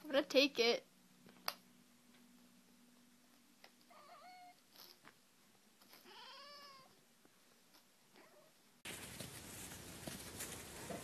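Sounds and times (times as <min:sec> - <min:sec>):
cat meowing: 0:03.9 - 0:04.6, 0:06.0 - 0:07.0.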